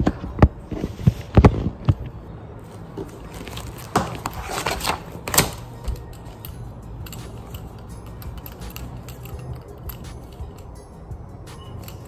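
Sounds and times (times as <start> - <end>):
background music: 1.6 - 12.0.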